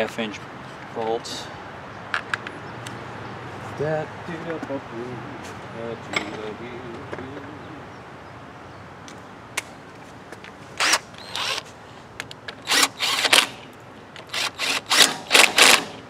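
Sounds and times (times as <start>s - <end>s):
cordless power driver bursts: 10.8s - 11.7s, 12.6s - 13.6s, 14.2s - 16.0s.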